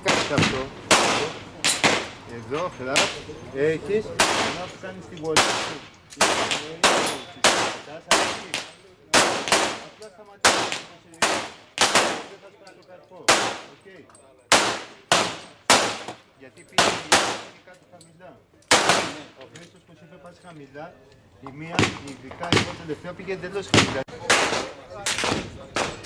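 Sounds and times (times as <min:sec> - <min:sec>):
handgun shots with ringing echo: 0:05.4 - 0:12.3, 0:18.7 - 0:19.3.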